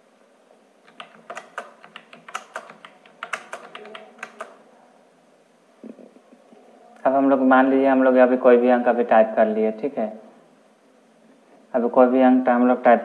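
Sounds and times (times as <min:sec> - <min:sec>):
computer keyboard typing: 0:00.8 - 0:04.6.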